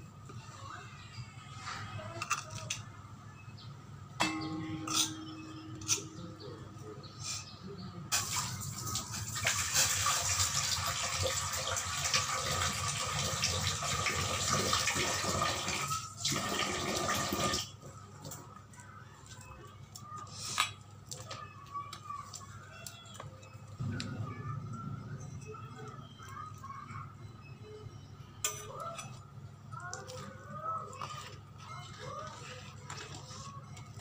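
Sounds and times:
liquid pouring into metal bowl: 0:08.1 - 0:17.6.

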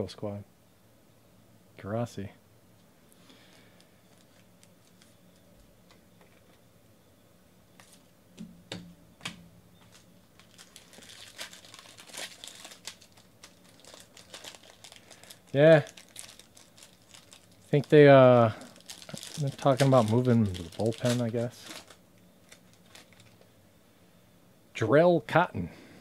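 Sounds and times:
foil wrapper crinkling: 0:03.5 - 0:05.4, 0:09.8 - 0:23.6.

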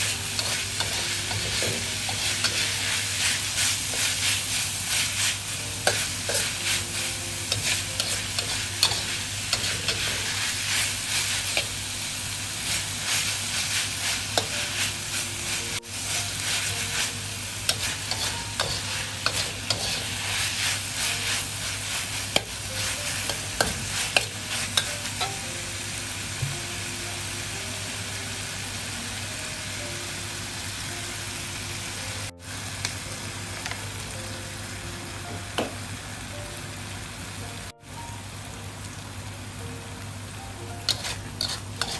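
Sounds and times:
meat sizzling in a wok: 0:00.0 - 0:41.9
metal spatula scraping pan: 0:17.7 - 0:21.3, 0:40.9 - 0:41.9.

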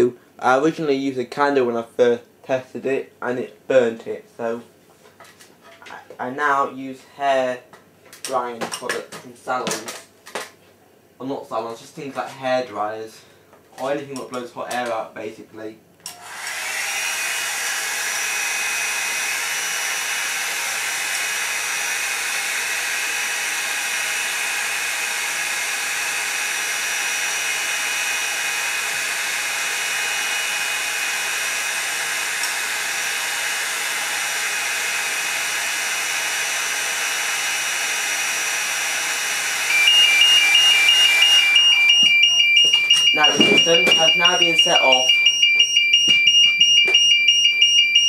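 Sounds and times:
hair dryer running: 0:16.1 - 0:48.0
two-tone alarm sounder: 0:39.6 - 0:48.0.

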